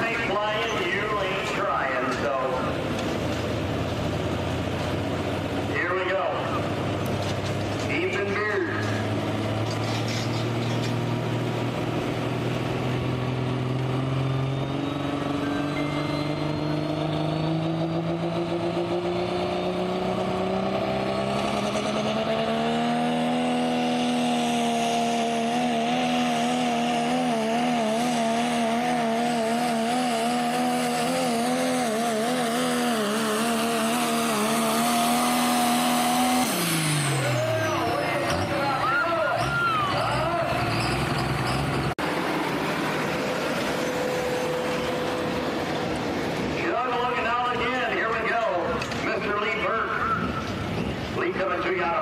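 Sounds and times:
diesel truck engine under full load: 0.0s - 52.0s.

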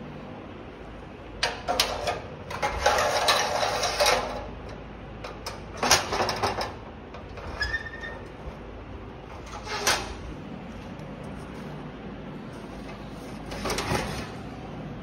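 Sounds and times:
metal damper rattling and scraping: 1.4s - 10.9s, 12.5s - 14.5s.

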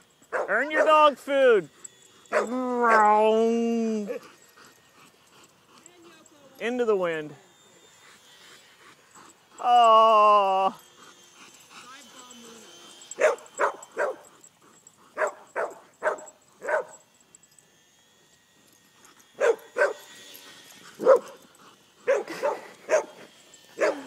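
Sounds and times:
dogs barking: 0.2s - 1.0s, 1.9s - 3.2s, 10.8s - 17.2s, 19.1s - 24.0s.

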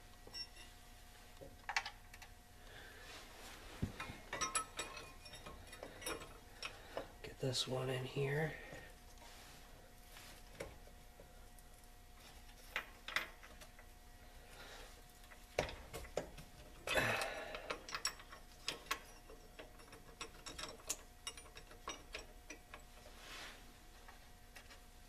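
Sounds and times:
metal tools clinking: 3.9s - 6.9s, 15.6s - 23.1s.

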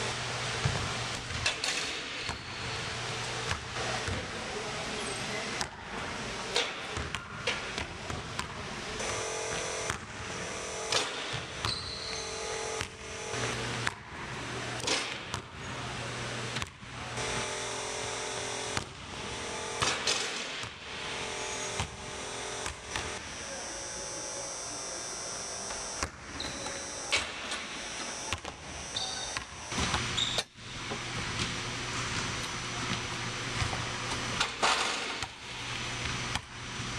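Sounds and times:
basketball bouncing on hardwood: 0.6s - 0.9s
steady hum: 7.4s - 36.9s
basketball rim ringing: 9.0s - 13.9s, 17.2s - 35.4s.

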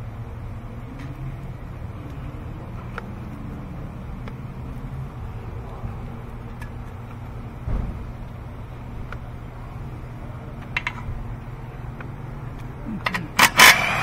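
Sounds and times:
low background hum: 0.0s - 14.0s
hand tools clicking and clinking: 12.9s - 14.0s.

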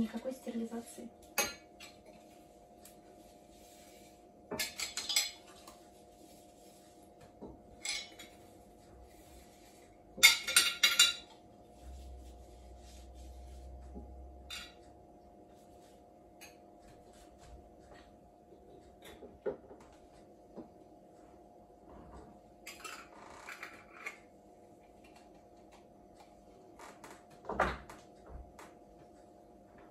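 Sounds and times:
faint steady hum: 0.0s - 29.9s.

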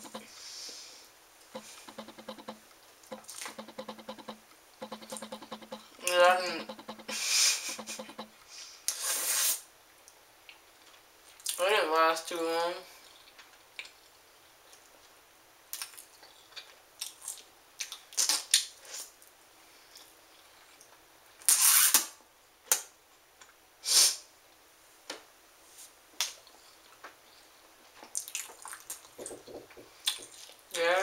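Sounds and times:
wet chewing clicks and smacks: 28.1s - 29.2s, 30.0s - 30.6s.

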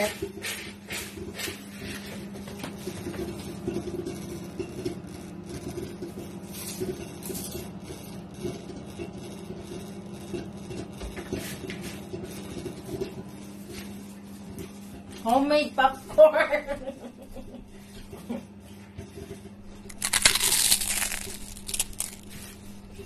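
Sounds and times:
popcorn popping: 0.0s - 11.0s, 19.6s - 23.0s
microwave oven humming: 0.0s - 23.0s.

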